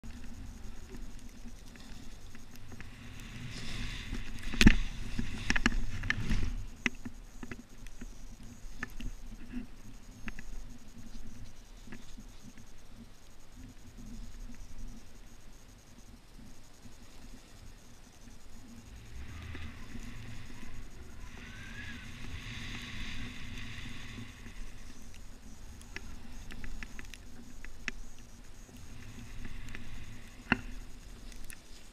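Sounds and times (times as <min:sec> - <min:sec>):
rustles in snow: 0:00.1 - 0:06.9, 0:16.4 - 0:31.9
snowboard sliding through snow: 0:01.9 - 0:06.9, 0:18.5 - 0:27.0, 0:28.6 - 0:31.9
light clicks: 0:18.2 - 0:31.7.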